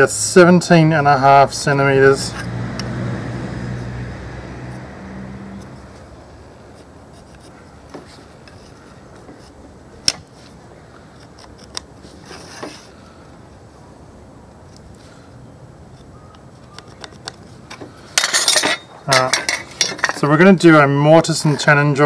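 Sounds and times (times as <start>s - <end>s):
passing vehicle engine hum: 1.2s - 7.0s.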